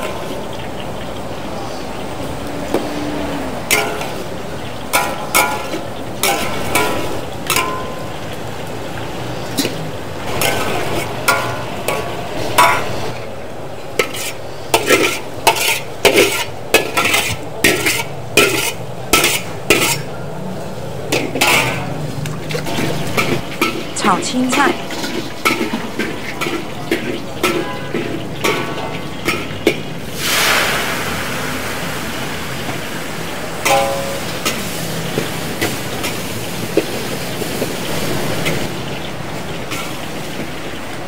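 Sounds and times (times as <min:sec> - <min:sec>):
food sizzling: 0:00.0 - 0:41.0
metal spatula clanking on wok: 0:03.6 - 0:08.4, 0:09.5 - 0:13.2, 0:13.9 - 0:20.2, 0:21.1 - 0:30.0, 0:33.6 - 0:37.0.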